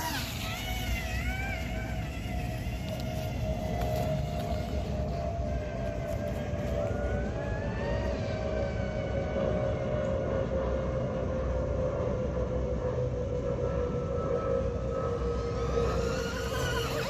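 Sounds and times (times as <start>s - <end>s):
electric motor whining: 0.0s - 10.2s, 14.2s - 17.0s
low rumble: 0.0s - 16.9s.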